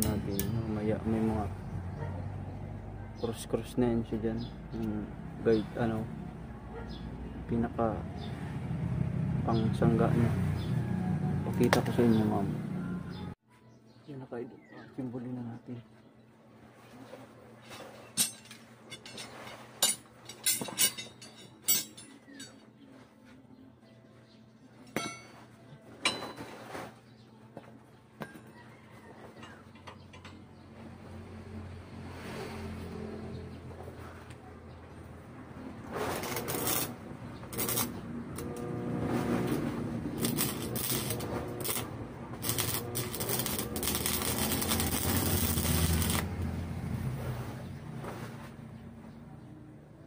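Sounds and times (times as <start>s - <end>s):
steel rods clanking: 17.7s - 22.6s, 24.9s - 26.7s
arc welding crackling and sizzling: 36.0s - 46.6s.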